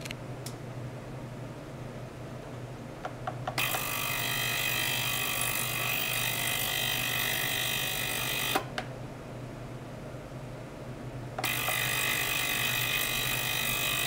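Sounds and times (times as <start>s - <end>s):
ultrasonic cleaner buzzing: 3.5s - 8.7s, 11.4s - 14.0s.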